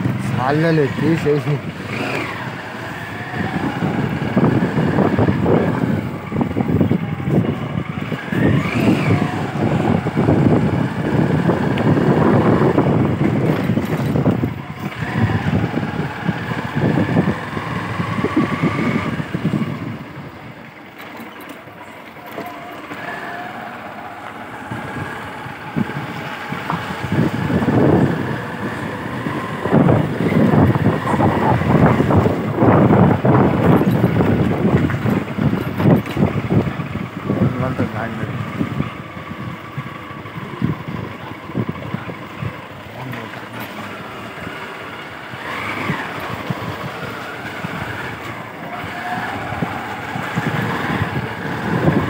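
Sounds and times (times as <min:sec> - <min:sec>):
wind buffeting microphone: 0:00.0 - 0:21.0, 0:22.5 - 0:52.0
motorbike engine whine: 0:00.0 - 0:52.0.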